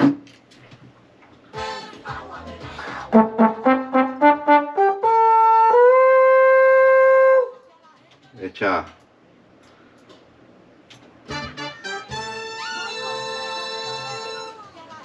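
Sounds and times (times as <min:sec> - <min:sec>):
trombone playing: 0:03.1 - 0:07.6, 0:11.3 - 0:14.6.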